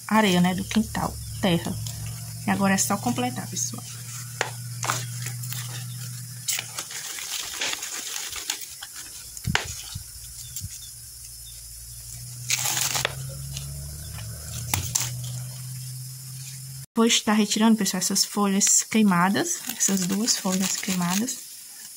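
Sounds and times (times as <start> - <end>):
low steady hum: 0.0 - 8.0
soil rustling and scraping: 0.2 - 16.7, 19.2 - 21.9.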